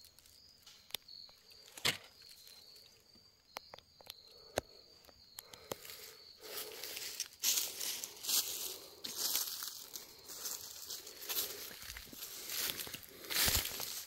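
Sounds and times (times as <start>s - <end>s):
high insect trill: 0.0s - 14.0s
footsteps crunching in dry leaves: 6.4s - 14.0s.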